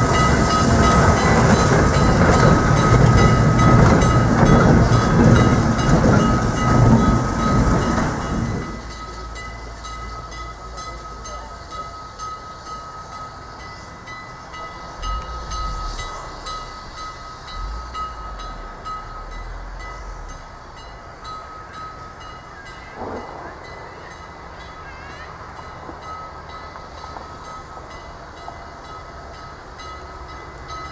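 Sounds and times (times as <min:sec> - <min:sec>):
steam hissing: 0:00.0 - 0:30.8
steady thin whine: 0:12.8 - 0:22.0.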